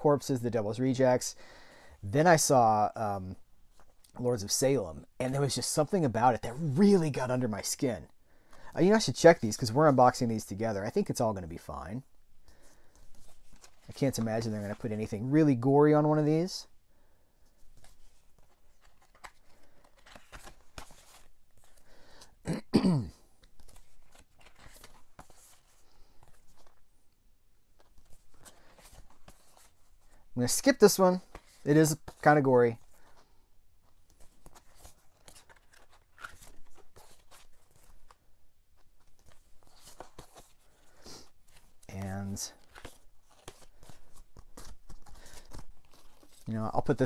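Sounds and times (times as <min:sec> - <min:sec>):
cards rustling and flipping: 0:12.4 - 0:16.4, 0:17.4 - 0:22.4, 0:23.3 - 0:26.9, 0:27.6 - 0:47.0.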